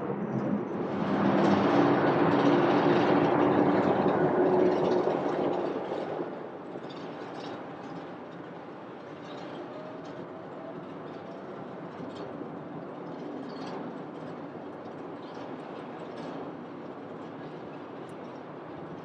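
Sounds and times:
distant jet engine rumble: 0.0 - 8.8
faint jet whine: 0.0 - 11.0.

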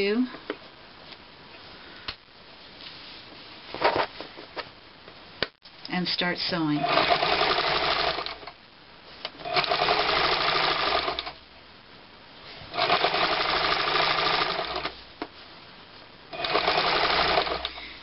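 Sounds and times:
electric sewing machine stitching: 6.8 - 8.5, 9.4 - 11.4, 12.7 - 14.9, 16.3 - 17.8.

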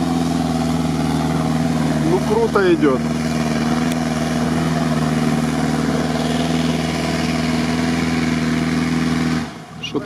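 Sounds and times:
suv engine running at steady revs: 0.0 - 10.0.

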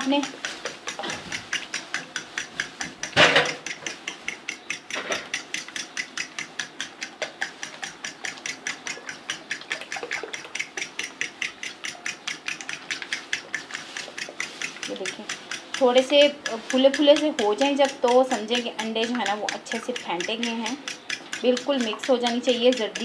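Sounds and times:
eggs beaten in a bowl: 0.0 - 23.0.

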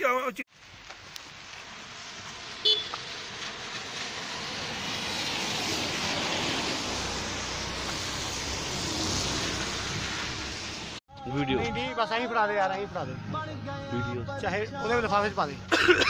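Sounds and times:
tyres hissing on wet road: 0.5 - 11.0.

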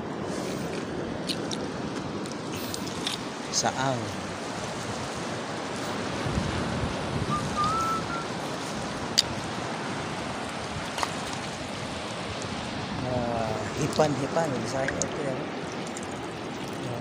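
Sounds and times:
surf rushing: 0.0 - 17.0
wind: 0.0 - 17.0
short rising whistle: 7.3 - 8.3.

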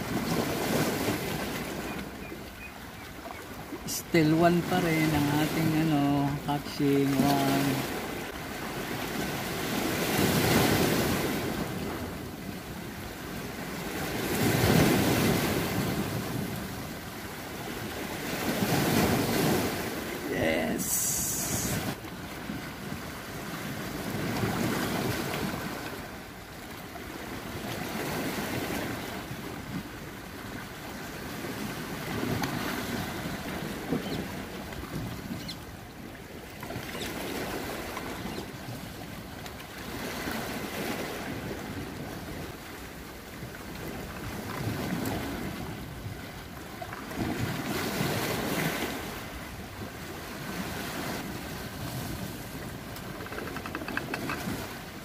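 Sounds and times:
sea waves surging and washing: 0.0 - 55.0
wind on microphone: 18.4 - 25.9.

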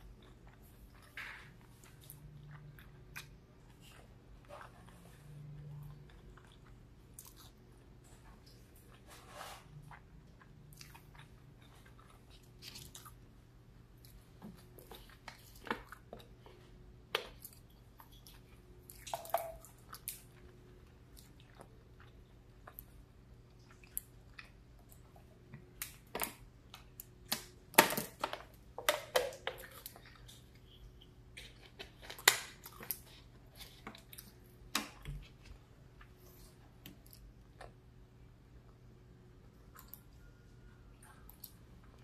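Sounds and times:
close chewing and mouth sounds: 0.0 - 27.6, 29.4 - 42.0.

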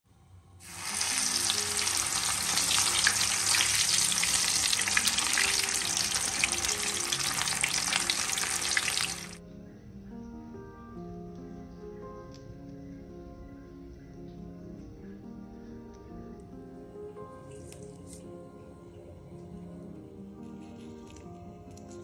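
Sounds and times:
fish deep-frying in oil: 0.6 - 9.4
soft instrumental music: 0.6 - 22.0.

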